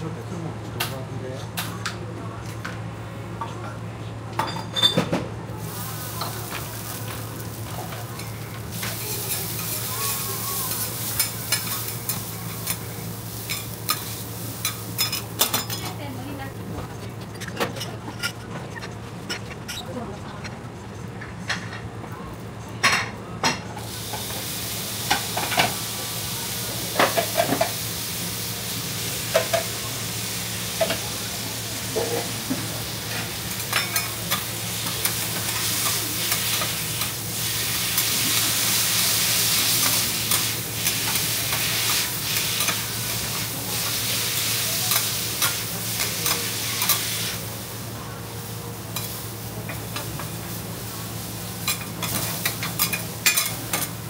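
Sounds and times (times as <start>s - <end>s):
noodles sizzling on a griddle: 5.6s - 16.6s, 22.9s - 54.0s.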